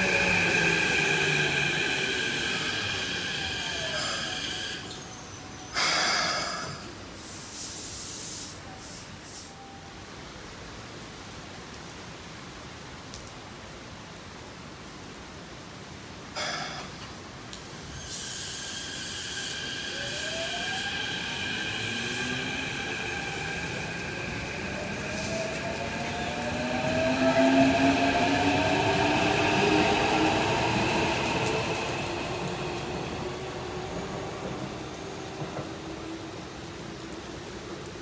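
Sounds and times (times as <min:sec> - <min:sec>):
electric train motors whining: 0:00.0 - 0:06.9, 0:17.6 - 0:37.0.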